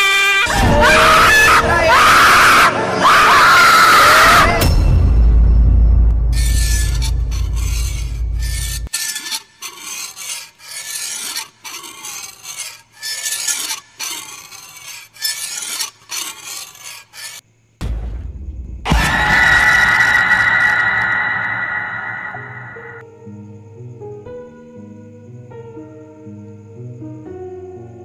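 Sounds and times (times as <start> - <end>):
low rumble: 4.6 - 8.9, 17.8 - 23.0
rasping scratching strokes: 6.3 - 17.4
sustained ringing sting: 18.9 - 23.0.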